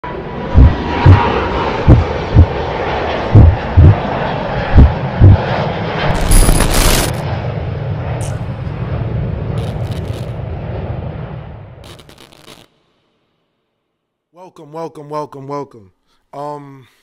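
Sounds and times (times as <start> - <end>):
jet engine noise: 0.0 - 12.7
deep bass thumps: 0.6 - 2.6, 3.3 - 4.0, 4.7 - 5.4
static crackling: 6.1 - 7.2, 9.6 - 10.4, 11.8 - 12.8.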